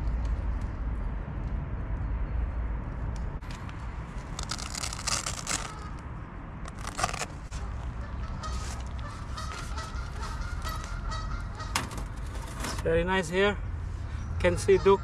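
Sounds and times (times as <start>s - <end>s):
fabric bag rustling and crackling: 4.2s - 6.0s, 6.7s - 7.6s.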